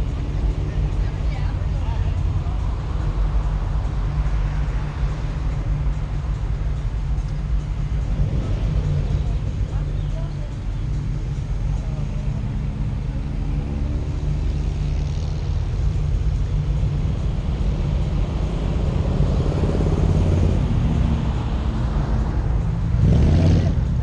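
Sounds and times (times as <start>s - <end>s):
car engine idling: 0.0s - 13.6s.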